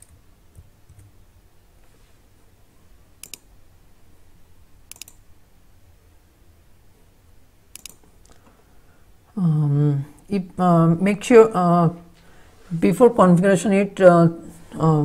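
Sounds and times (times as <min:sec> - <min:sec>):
low room hum: 0:00.0 - 0:15.0
mouse and keyboard clicks: 0:03.2 - 0:03.5, 0:04.9 - 0:05.2, 0:07.8 - 0:08.4.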